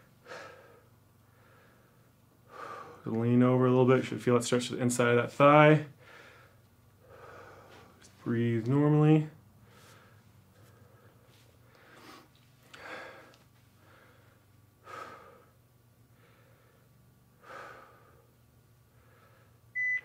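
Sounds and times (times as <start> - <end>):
person breathing slowly: 0.0 - 3.1, 6.0 - 8.0, 9.6 - 19.6.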